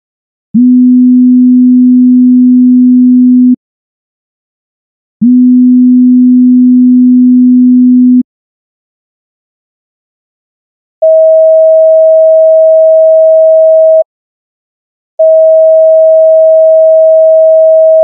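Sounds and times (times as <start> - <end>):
sine wave test tone: 0.6 - 3.6, 5.2 - 8.2, 11.0 - 14.0, 15.2 - 18.0.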